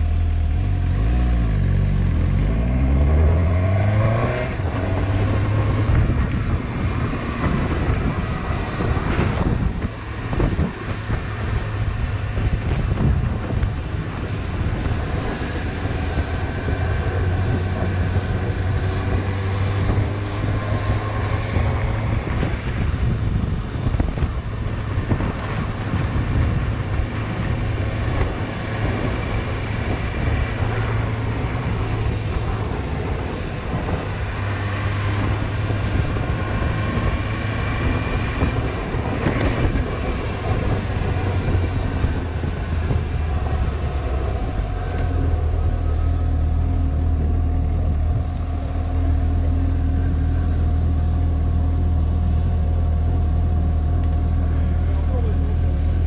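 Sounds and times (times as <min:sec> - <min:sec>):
wind buffeting microphone: 0:00.8 - 0:56.0
motorcycle engine running: 0:35.2 - 0:56.0.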